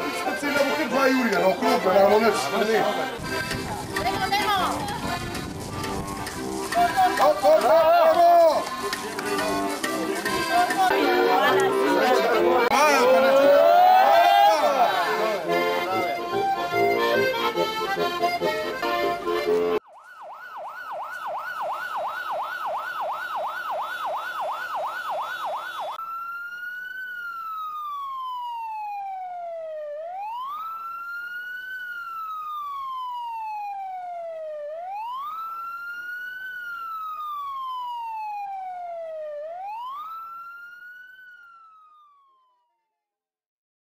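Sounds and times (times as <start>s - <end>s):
electronic siren yelp: 10.9s - 18.5s, 19.7s - 42.9s
siren slow wail: 10.9s - 18.5s, 19.6s - 43.0s.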